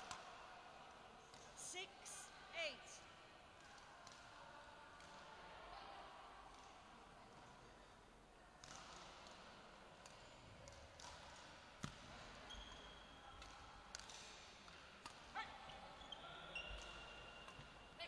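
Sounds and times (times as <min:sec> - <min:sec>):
shoes squeaking on court floor: 0:12.5 - 0:13.0, 0:15.7 - 0:17.8.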